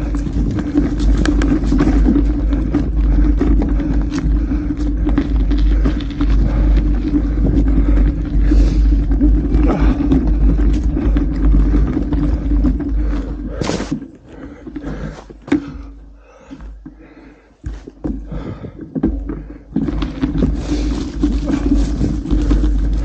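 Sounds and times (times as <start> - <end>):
wind rumbling on microphone: 0.0 - 13.6
bike rattling and knocking: 0.0 - 23.0.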